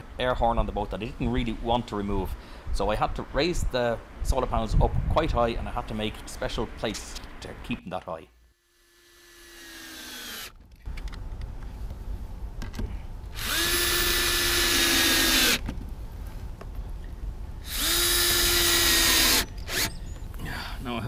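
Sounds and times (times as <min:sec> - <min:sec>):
cordless drill drilling into metal: 0:08.9 - 0:10.5, 0:13.4 - 0:15.6, 0:17.7 - 0:20.0.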